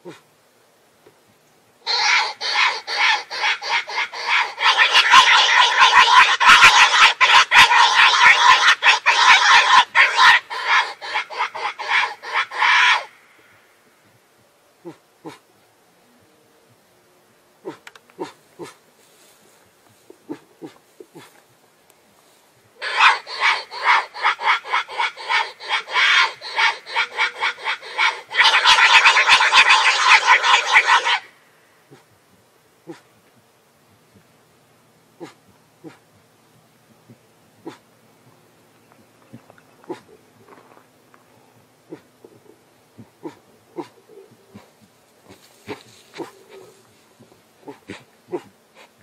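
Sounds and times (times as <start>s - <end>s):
pig grunting and squealing: 0.0s - 0.2s, 1.8s - 13.1s, 17.6s - 18.8s, 22.8s - 31.3s, 37.6s - 37.8s, 39.3s - 40.2s, 41.9s - 49.0s.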